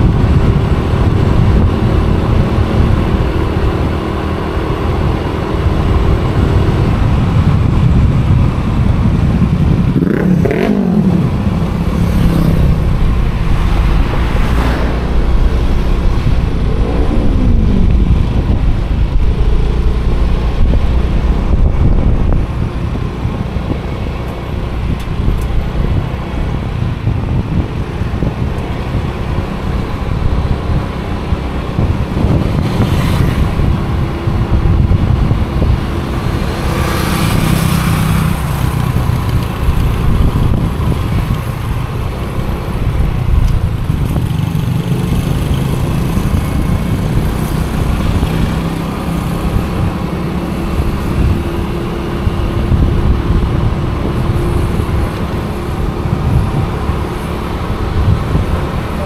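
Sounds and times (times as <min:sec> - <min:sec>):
vehicle engine running: 0:00.0 - 0:30.8
heavy low traffic rumble: 0:00.0 - 0:59.0.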